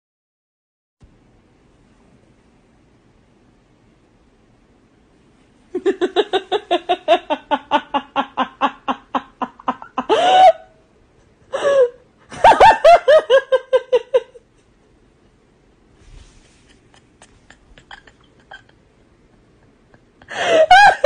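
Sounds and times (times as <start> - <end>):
person laughing hard: 5.7 - 10.7, 11.5 - 14.5, 16.7 - 21.0.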